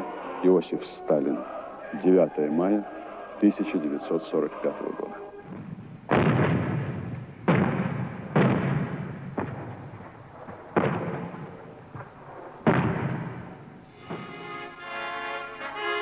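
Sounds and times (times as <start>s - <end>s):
artillery salute booms: 5.4s - 14.4s.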